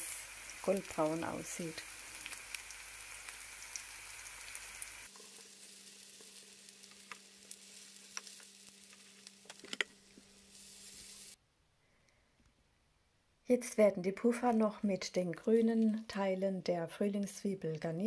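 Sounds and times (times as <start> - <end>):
oil sizzling in a pan: 0.0 - 11.4
crackles and ticks: 6.2 - 9.9.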